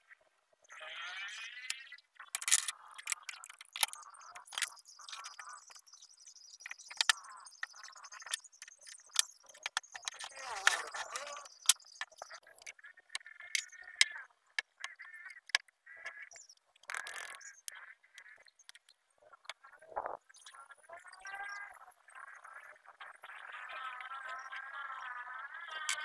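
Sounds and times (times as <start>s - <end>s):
plastic clamp clicks and clatter: 2.4s - 5.3s, 16.8s - 17.4s.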